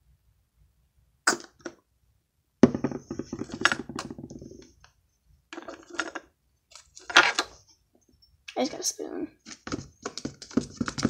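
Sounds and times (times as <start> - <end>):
bottle knocking on table: 2.6 - 4.4.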